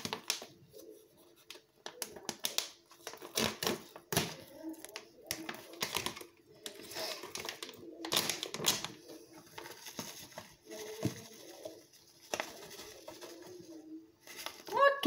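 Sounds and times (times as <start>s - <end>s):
packet crinkling: 1.5s - 14.9s.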